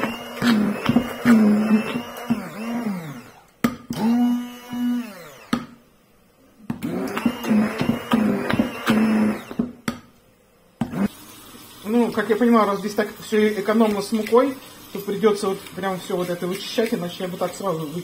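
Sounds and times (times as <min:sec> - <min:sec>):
immersion blender motor: 0:00.0 - 0:05.6, 0:06.8 - 0:09.7, 0:10.8 - 0:11.4.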